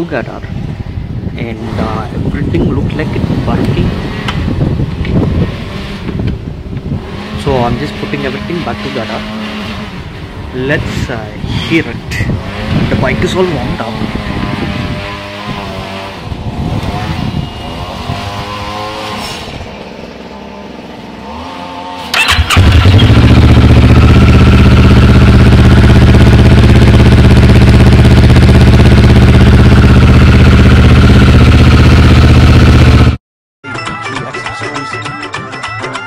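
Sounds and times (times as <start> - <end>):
motorcycle engine idling: 22.2 - 33.2.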